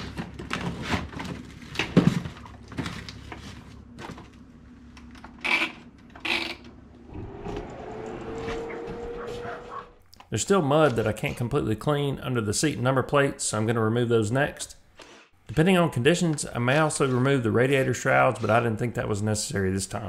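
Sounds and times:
boot dryer fan humming: 6.7s - 10.0s.

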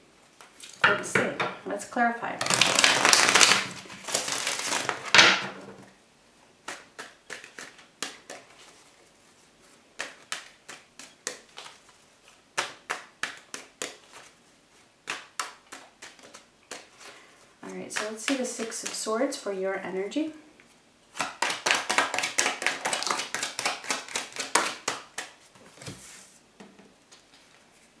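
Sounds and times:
cards being shuffled: 2.4s - 5.2s, 6.6s - 9.0s, 9.6s - 14.4s, 15.0s - 19.1s, 21.1s - 26.2s.

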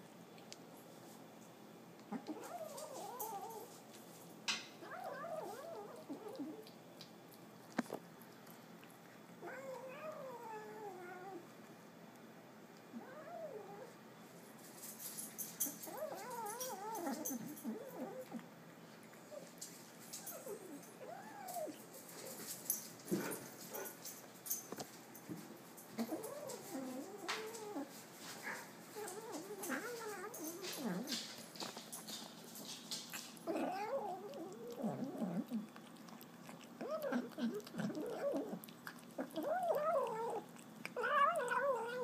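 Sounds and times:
kitten growling: 33.4s - 42.0s.

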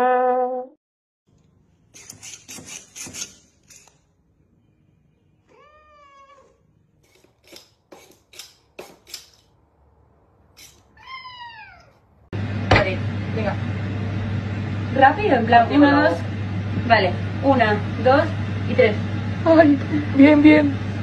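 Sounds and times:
sharp clicks and scrapes: 1.4s - 4.1s, 7.0s - 9.6s, 10.6s - 10.9s
cat meowing: 5.5s - 6.6s, 10.8s - 12.0s.

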